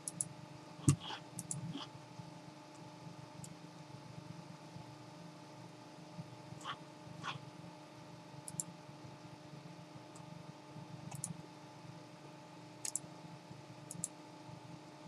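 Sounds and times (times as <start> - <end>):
computer mouse clicks: 0.0 - 0.3, 0.9 - 1.9, 8.5 - 8.7, 11.1 - 11.4, 12.8 - 13.0, 13.9 - 14.2
low steady hum: 0.0 - 15.0.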